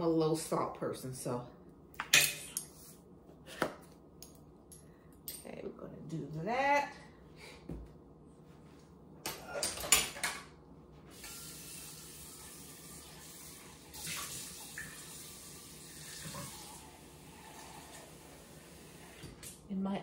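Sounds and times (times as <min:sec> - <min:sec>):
tap water running into pot: 0:11.1 - 0:19.5.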